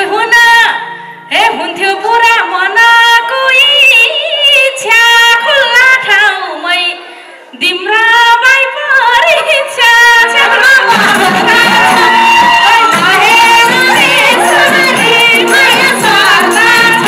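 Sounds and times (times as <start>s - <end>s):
woman singing into a microphone: 0.0s - 17.0s.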